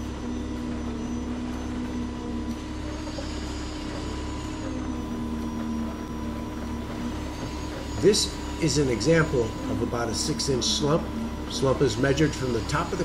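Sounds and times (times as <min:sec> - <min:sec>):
concrete pump truck engine drone: 0:00.0 - 0:13.0.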